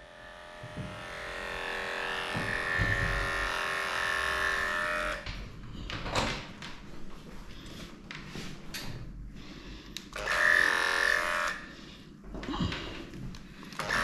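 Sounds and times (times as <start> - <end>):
electric dog clipper running: 0.0 - 5.4, 10.1 - 11.7, 13.7 - 14.0
knock: 2.4 - 3.3.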